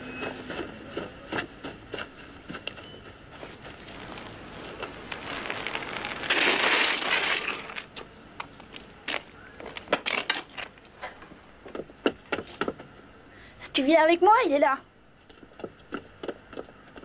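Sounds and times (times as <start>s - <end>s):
bicycle tyres crunching on gritty ground: 0.0s - 11.1s.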